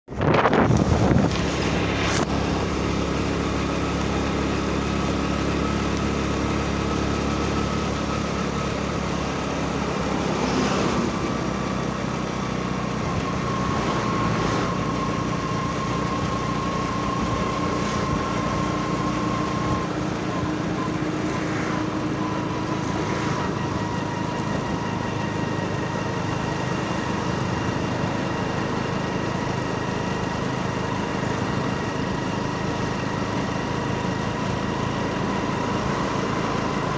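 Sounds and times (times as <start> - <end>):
vehicle engine and road noise: 0.0 - 36.9
passing traffic whooshes: 0.1 - 4.1, 9.3 - 16.0, 16.8 - 24.8.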